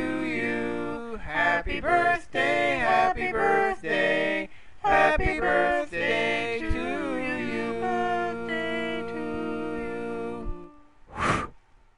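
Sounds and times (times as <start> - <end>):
birthday song sung with instruments: 0.0 - 11.0.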